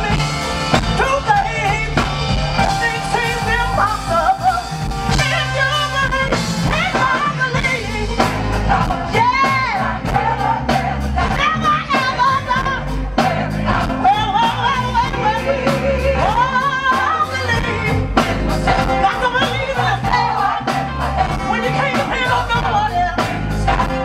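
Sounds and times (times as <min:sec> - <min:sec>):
bass: 0:00.0 - 0:24.0
gospel band playing: 0:00.0 - 0:24.0
steady drum beat: 0:00.0 - 0:24.0
woman singing lead: 0:00.0 - 0:24.0
choir singing: 0:06.9 - 0:24.0.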